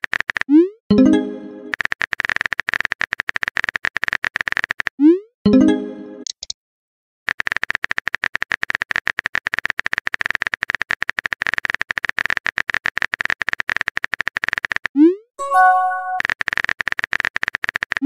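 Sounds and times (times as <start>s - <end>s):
keyboard typing clicks: 5.5s - 6.6s.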